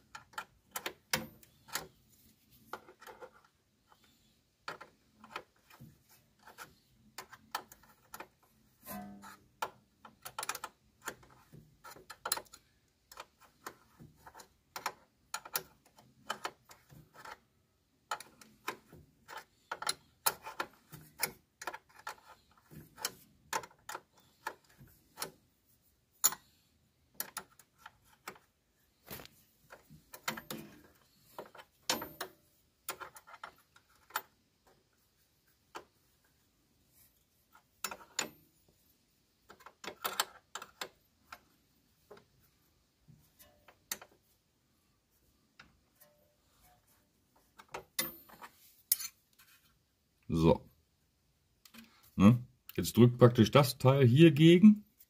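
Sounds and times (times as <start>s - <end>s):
spanners clicking on metal nut: 47.6s - 49.2s.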